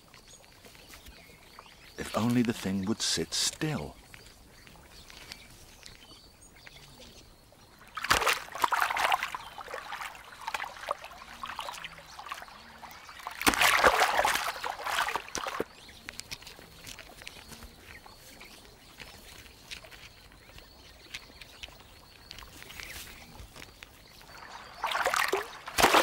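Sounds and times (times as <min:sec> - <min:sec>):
wet splashing and sloshing: 0:07.7 - 0:26.0.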